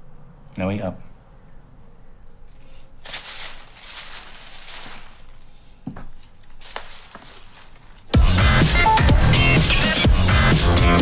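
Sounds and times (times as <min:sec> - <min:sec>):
soft rustling and handling noise: 0:02.4 - 0:08.1.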